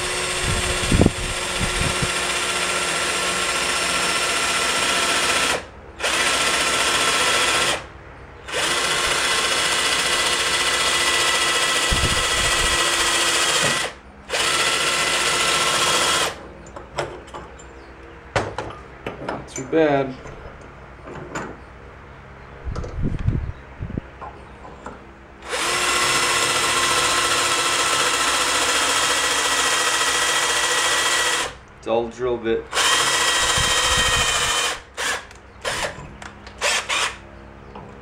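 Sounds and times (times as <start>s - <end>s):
drill boring into metal tube: 0.0s - 7.8s, 8.5s - 16.4s, 25.4s - 31.6s, 32.7s - 36.0s, 36.6s - 37.2s.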